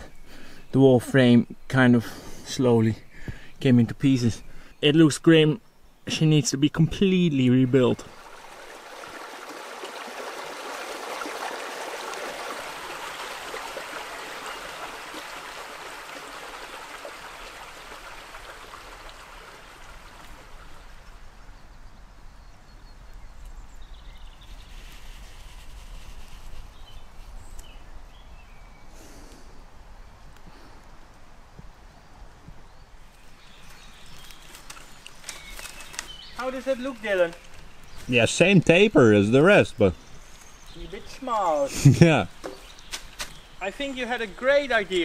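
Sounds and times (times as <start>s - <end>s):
stream running over rocks: 7.0s - 21.6s, 33.1s - 45.0s.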